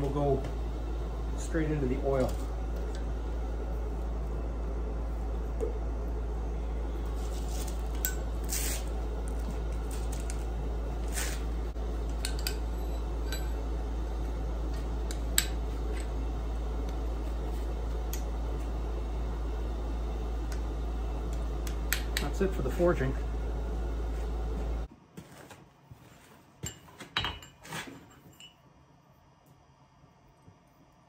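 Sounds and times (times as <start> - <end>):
steady low hum: 0.0 - 24.9
hot metal hissing: 8.3 - 9.0.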